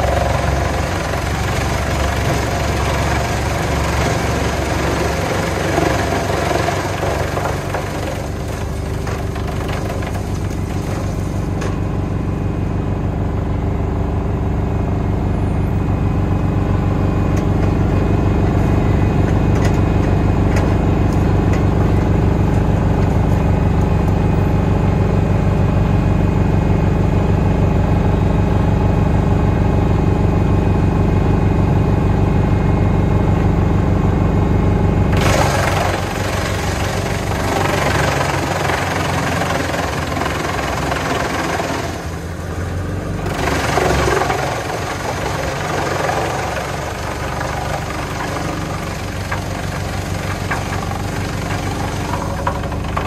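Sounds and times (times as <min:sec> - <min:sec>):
wood chipper chewing wood: 0:00.0 - 0:12.0, 0:35.1 - 0:53.0
tractor diesel engine drone: 0:00.0 - 0:53.0.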